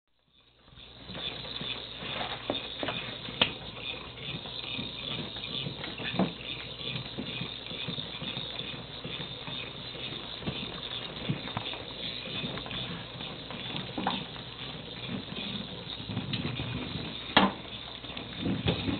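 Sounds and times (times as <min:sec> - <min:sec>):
toy ball rattling whir: 0:00.2 - 0:18.9.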